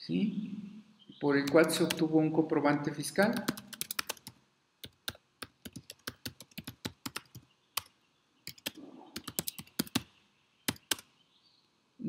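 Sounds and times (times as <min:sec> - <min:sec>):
typing on computer keyboard: 0:01.5 - 0:02.0, 0:03.3 - 0:07.9, 0:08.5 - 0:10.1, 0:10.7 - 0:11.0.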